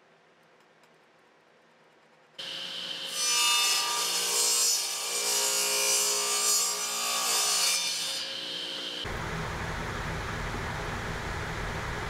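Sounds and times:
table saw cutting wood: 0:02.4 - 0:09.1.

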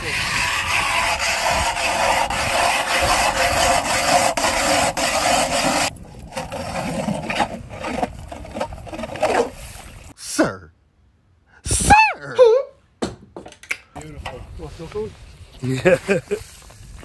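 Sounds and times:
ice auger scraping ice: 0:00.0 - 0:10.0.

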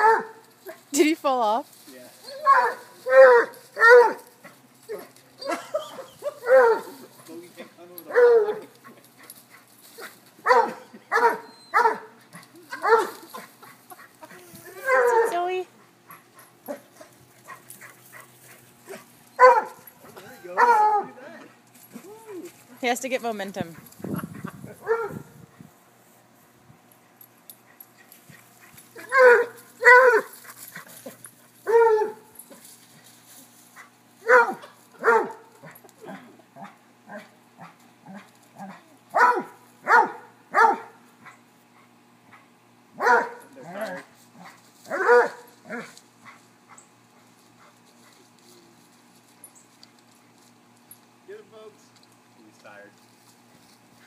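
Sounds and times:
dog barking: 0:00.0 - 0:00.4, 0:02.4 - 0:04.2, 0:06.2 - 0:07.0, 0:10.4 - 0:12.1, 0:12.7 - 0:13.1, 0:19.4 - 0:19.8, 0:20.6 - 0:21.2, 0:24.8 - 0:25.2, 0:29.0 - 0:30.3, 0:34.2 - 0:35.5, 0:39.1 - 0:41.0, 0:43.0 - 0:43.5, 0:44.9 - 0:45.8.

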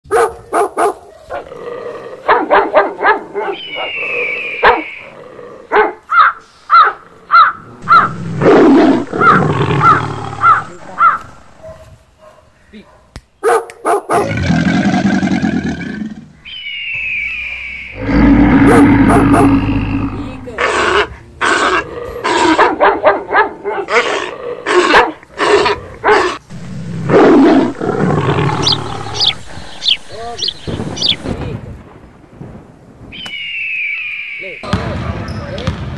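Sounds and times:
dog barking: 0:00.1 - 0:01.5, 0:02.2 - 0:04.0, 0:04.6 - 0:04.9, 0:05.7 - 0:14.3, 0:18.6 - 0:19.6, 0:22.5 - 0:24.1, 0:24.9 - 0:25.2, 0:26.0 - 0:26.4
low rumbling: 0:07.7 - 0:11.6, 0:17.9 - 0:22.2, 0:25.9 - 0:33.1.

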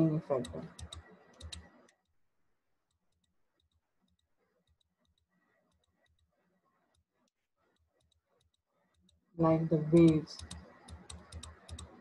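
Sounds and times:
computer mouse clicks: 0:00.4 - 0:02.1, 0:09.9 - 0:12.0.

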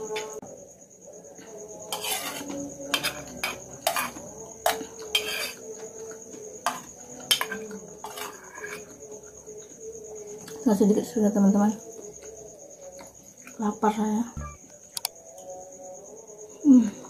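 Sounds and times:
crickets chirring: 0:00.0 - 0:17.0
metal spoon scraping a plate: 0:01.9 - 0:05.6, 0:07.3 - 0:08.9.

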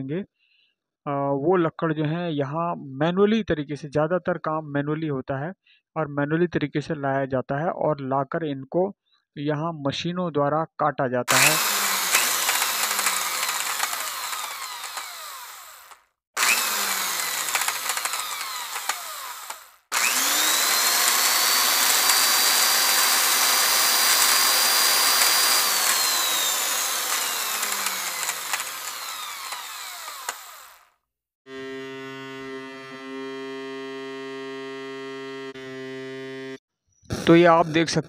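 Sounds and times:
power tool motor whining: 0:11.3 - 0:30.9, 0:31.5 - 0:36.6.

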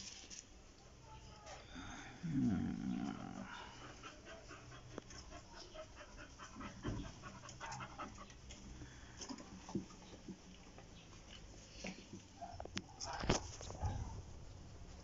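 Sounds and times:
dog panting: 0:03.4 - 0:08.8.

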